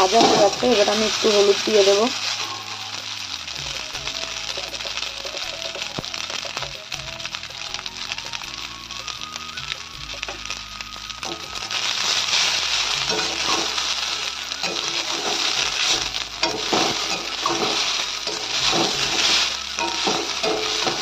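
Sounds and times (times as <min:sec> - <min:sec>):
pasta sizzling in oil: 0:00.0 - 0:21.0
metal spatula scraping pan: 0:14.6 - 0:21.0.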